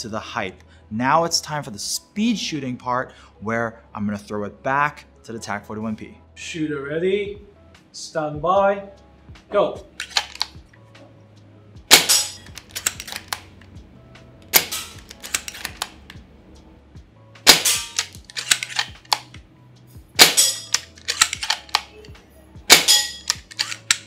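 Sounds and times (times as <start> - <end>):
rifle bolt clicking: 10.0 - 10.6, 11.9 - 13.7, 14.4 - 16.2, 17.5 - 19.4, 20.2 - 22.1, 22.7 - 24.0
airsoft rifle shots: 11.9 - 12.5, 14.5 - 15.0, 17.4 - 19.2, 20.2 - 21.8, 22.7 - 23.4.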